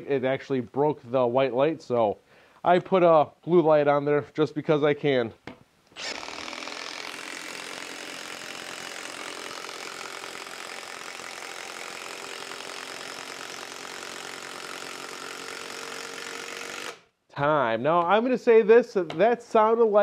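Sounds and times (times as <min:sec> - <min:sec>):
impact wrench hammering: 0:06.0 - 0:17.0.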